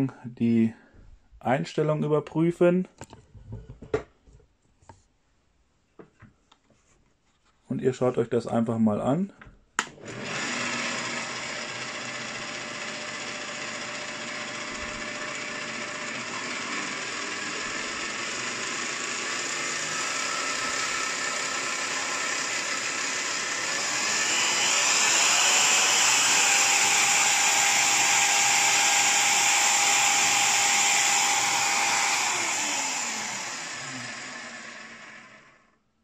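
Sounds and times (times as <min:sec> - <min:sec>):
drill press whining: 0:09.8 - 0:35.7.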